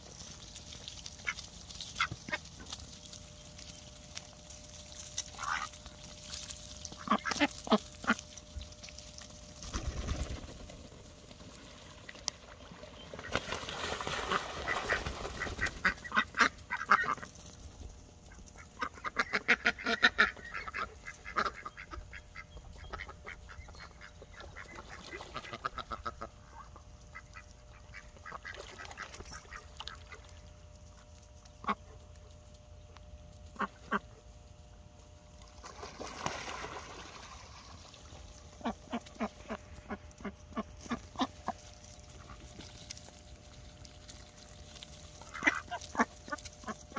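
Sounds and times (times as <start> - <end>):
ducks quacking: 1.0 - 2.8, 5.2 - 6.2, 6.9 - 8.4, 13.1 - 17.4, 18.2 - 30.4, 31.5 - 32.1, 33.4 - 34.2, 38.5 - 42.7, 45.0 - 46.9.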